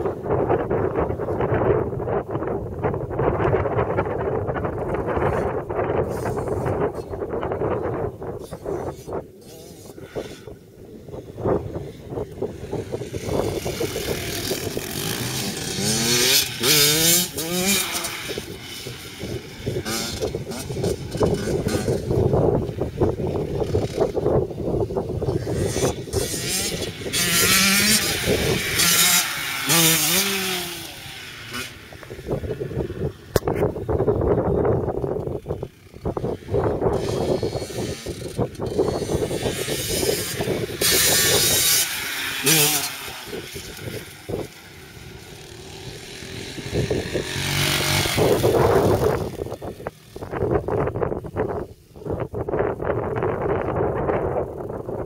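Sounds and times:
dirt bike engine revving: 7.5 - 51.6.

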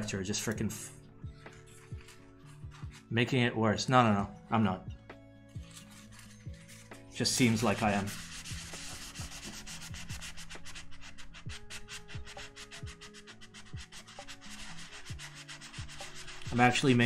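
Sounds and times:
paper towel rubbing on metal: 1.4 - 3.1, 5.6 - 17.0.

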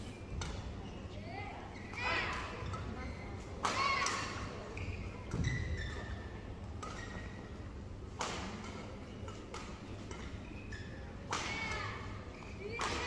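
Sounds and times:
shoes squeaking on court floor: 2.6 - 3.6, 4.5 - 7.7, 8.4 - 11.2.

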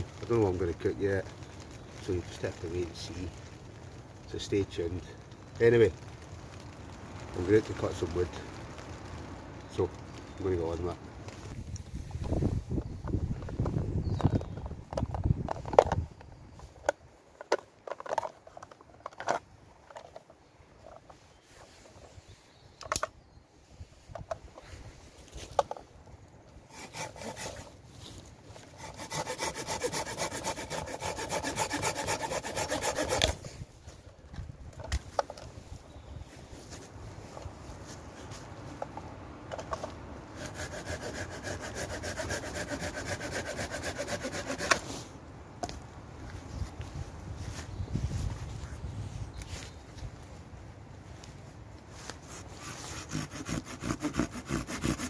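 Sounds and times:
hand saw rasping: 26.7 - 27.7, 28.8 - 33.4, 40.4 - 44.8, 52.6 - 55.0
saw and plastic case clicking: 28.8 - 33.4, 44.2 - 44.8.

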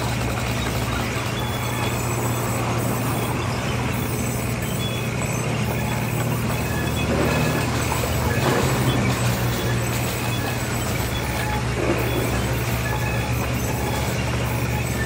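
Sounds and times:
band saw cutting timber: 0.0 - 15.0.

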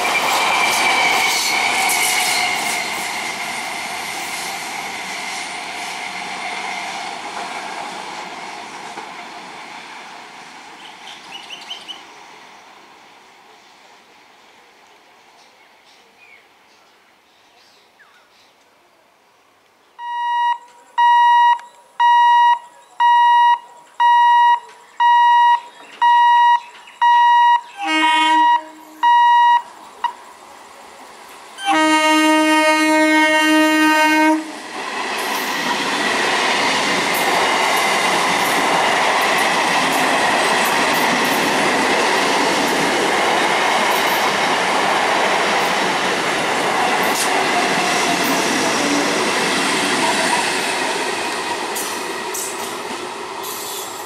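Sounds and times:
train wheels rumbling on rails: 0.0 - 12.8, 31.2 - 54.0
electronic warning beep: 20.0 - 30.2
train horn: 27.7 - 29.5, 31.6 - 34.6.

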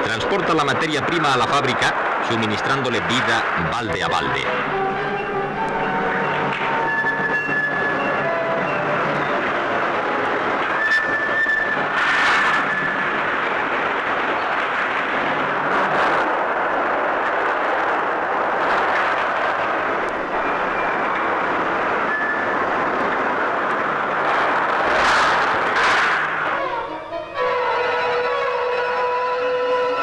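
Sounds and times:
ropeway mechanical rattle and rumble: 0.0 - 30.0
high metallic squeals: 4.5 - 13.1, 22.0 - 22.6, 26.5 - 30.0.

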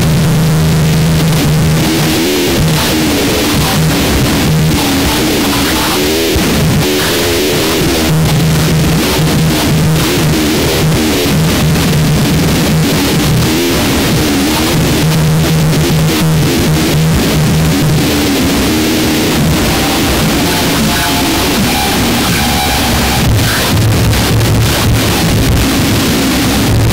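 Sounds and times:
distorted noise wall: 0.0 - 26.9
crackling: 0.1 - 26.9
low drone: 16.4 - 26.9
wavering mid-pitched tones: 19.5 - 23.8.

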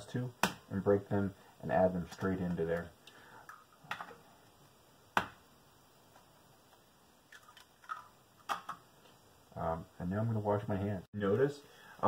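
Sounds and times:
eggshell cracking: 7.3 - 8.8.

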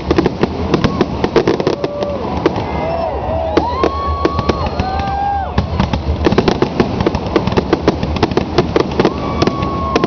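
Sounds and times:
fireworks bangs and crackles: 0.0 - 10.0
firework whistle: 0.7 - 5.8, 9.0 - 10.0.

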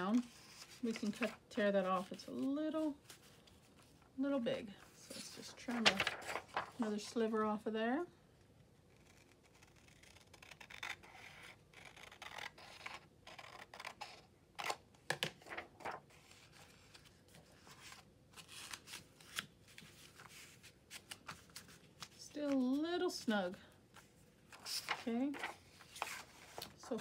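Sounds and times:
paper rustling and crinkling: 4.9 - 7.1, 15.3 - 22.8, 24.0 - 27.0.

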